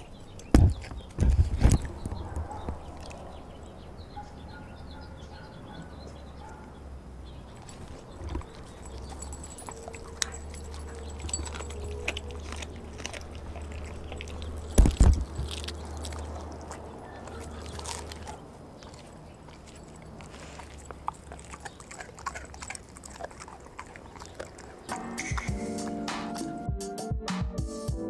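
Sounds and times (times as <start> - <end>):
claw clicks and collar tag jingles: 7.5 - 25.5
dog mouthing and sniffing meat: 7.6 - 25.6.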